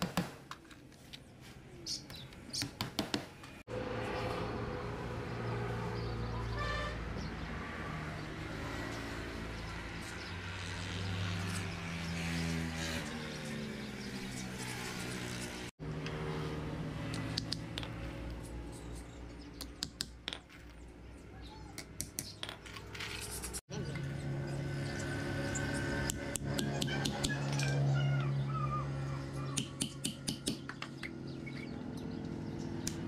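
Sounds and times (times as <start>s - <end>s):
nails and hammer clicking: 29.6s - 31.1s.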